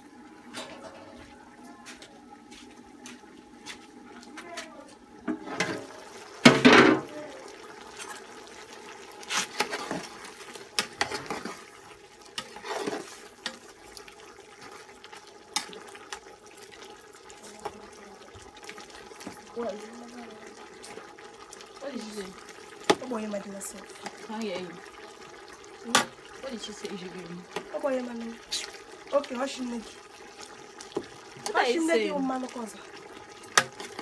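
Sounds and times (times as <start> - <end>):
stew boiling in pot: 0.0 - 34.0
metal ladle scraping pot: 12.4 - 13.6.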